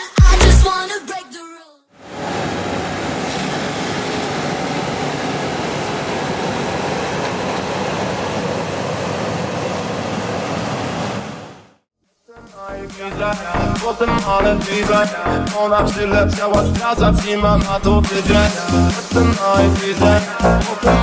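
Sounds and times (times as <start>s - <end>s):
combine harvester running: 2.0s - 11.7s.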